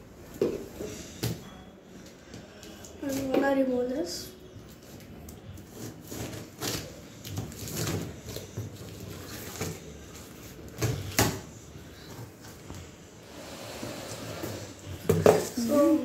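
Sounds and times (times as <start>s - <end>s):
scissors cutting plastic: 4.7s - 9.8s.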